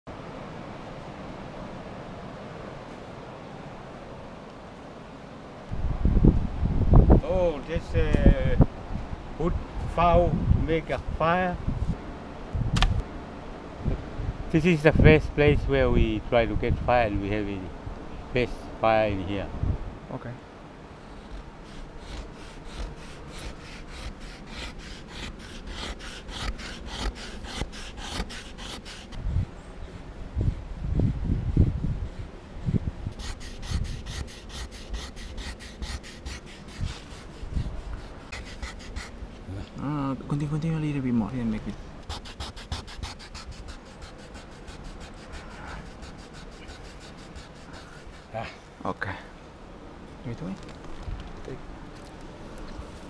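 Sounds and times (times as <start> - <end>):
wooden stick rasping on log: 21.3 - 29.2, 33.1 - 39.2, 42.0 - 48.4.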